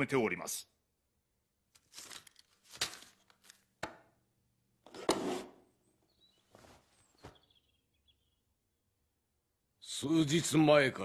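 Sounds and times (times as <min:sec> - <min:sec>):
heavy robes rustling: 0:06.4 - 0:07.5.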